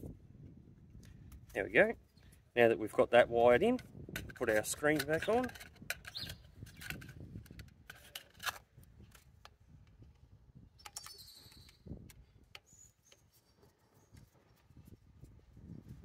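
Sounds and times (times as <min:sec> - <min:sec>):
faint clicks and handling noise: 0:03.6 - 0:14.9.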